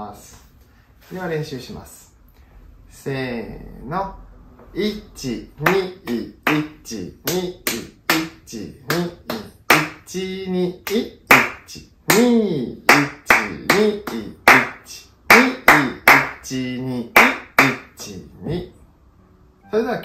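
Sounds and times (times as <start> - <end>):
man counting aloud: 2.9 - 18.8
hand claps in rhythm: 5.6 - 10.2, 10.8 - 16.6, 17.2 - 18.1.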